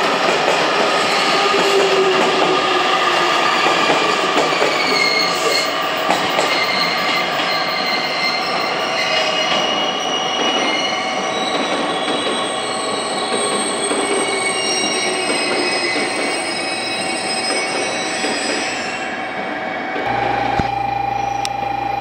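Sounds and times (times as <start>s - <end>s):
train wheels squealing: 3.6s - 19.4s.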